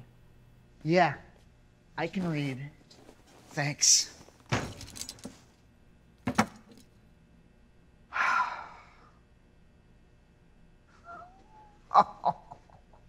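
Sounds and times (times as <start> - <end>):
person gasping: 8.1 - 9.2.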